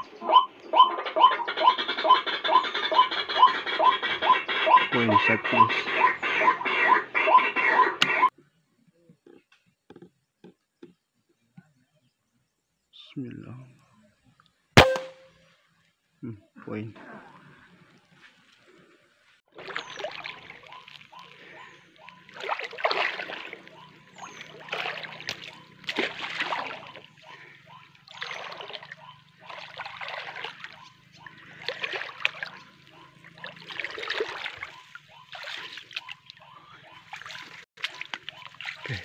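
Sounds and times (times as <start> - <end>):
footsteps wading through water: 19.5 - 39.0.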